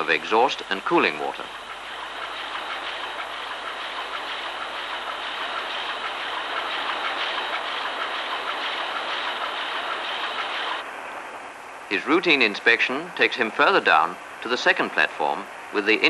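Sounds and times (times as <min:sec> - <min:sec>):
marine diesel engine clattering: 0:00.0 - 0:10.8.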